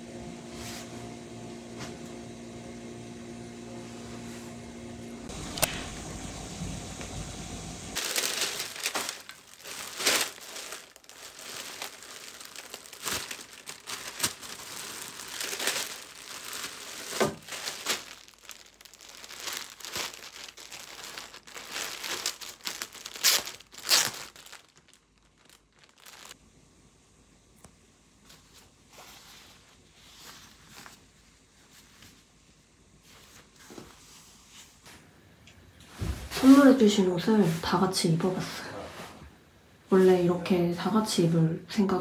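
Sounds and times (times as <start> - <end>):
paper and plastic crinkling: 8.0 - 26.4.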